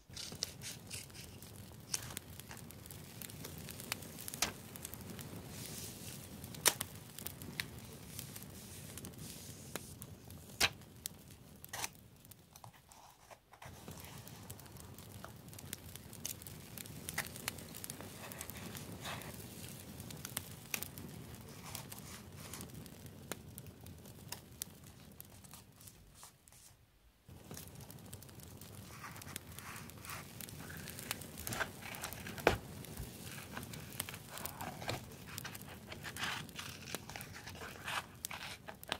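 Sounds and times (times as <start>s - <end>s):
paper rustling: 28.9s - 38.9s.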